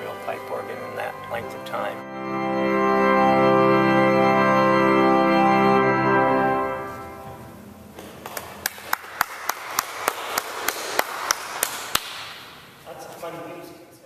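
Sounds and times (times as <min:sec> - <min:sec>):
pipe organ chord: 0:00.0 - 0:07.9.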